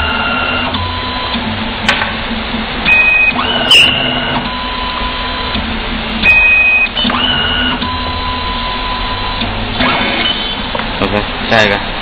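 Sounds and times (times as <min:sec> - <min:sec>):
cable stripping machine whining: 0:00.0 - 0:02.0, 0:02.8 - 0:10.8.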